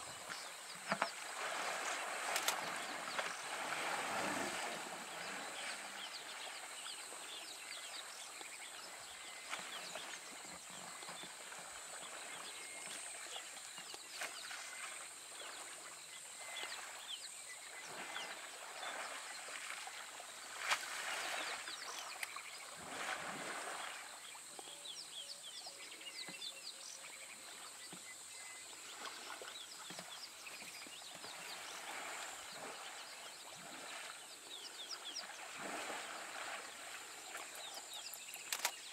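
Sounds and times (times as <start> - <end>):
water splashing and sloshing: 0.0 - 25.1, 26.3 - 38.9
small birds chirping: 23.8 - 38.9.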